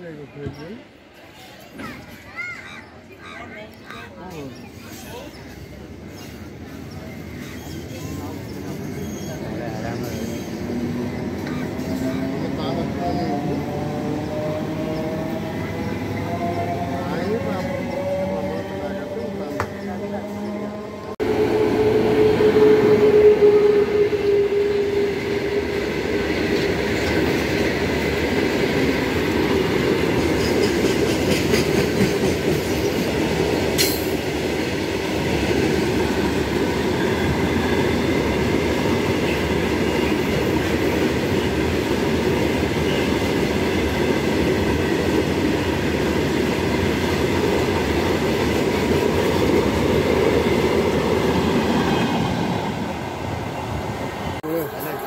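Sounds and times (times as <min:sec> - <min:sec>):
train wheels clattering on rails: 0:26.0 - 0:51.8.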